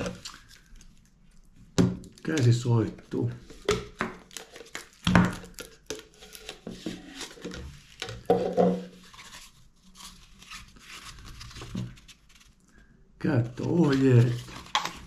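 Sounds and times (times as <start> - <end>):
paper leaflet rustling: 8.9 - 12.6, 13.5 - 15.0.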